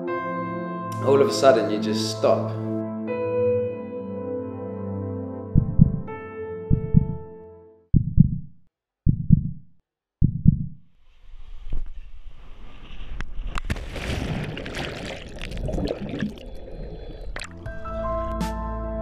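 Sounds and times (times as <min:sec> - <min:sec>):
deep heartbeat thumps: 0:05.5 - 0:06.1, 0:06.7 - 0:07.3, 0:07.9 - 0:10.9
splash into pool: 0:13.5 - 0:16.6
underwater bubbling: 0:13.7 - 0:17.9.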